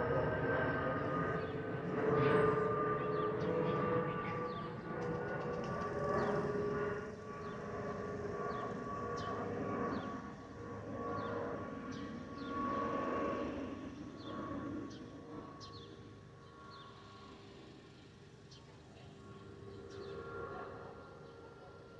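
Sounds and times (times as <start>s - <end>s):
jet plane passing overhead: 0.0s - 21.9s.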